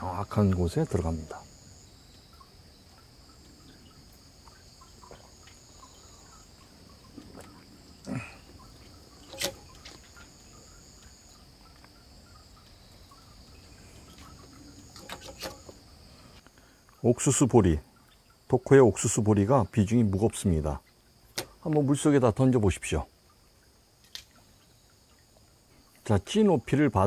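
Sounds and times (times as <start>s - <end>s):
crickets and insects chirring: 0.0s - 27.0s
small water plop: 2.1s - 15.9s, 23.2s - 26.1s.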